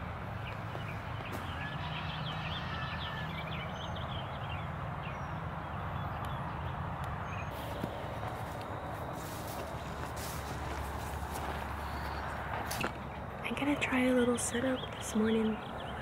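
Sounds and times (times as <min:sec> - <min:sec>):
small birds chirping: 0:00.0 - 0:16.0
footsteps through tall grass: 0:00.5 - 0:01.8, 0:07.5 - 0:13.1
steady low rumble: 0:05.7 - 0:16.0.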